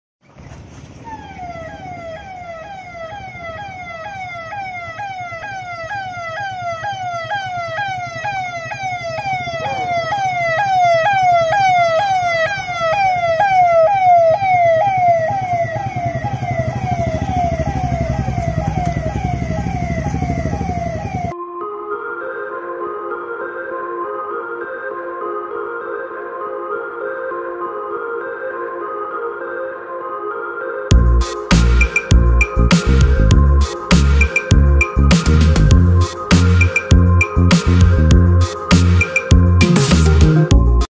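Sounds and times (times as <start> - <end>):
vehicle engine rumble: 0.2 - 21.3
police siren wailing: 1.0 - 40.9.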